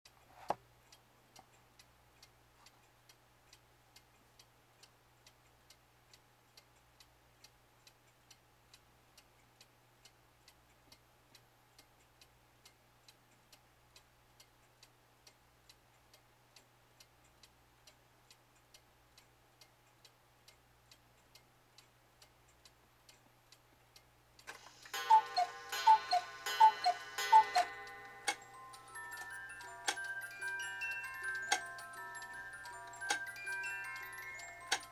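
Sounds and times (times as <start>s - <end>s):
cuckoo clock ticking: 0.1s - 34.9s
clock strike mechanism whirring: 24.5s - 34.9s
music-box tune: 24.5s - 34.9s
two-note cuckoo calls: 24.6s - 30.1s.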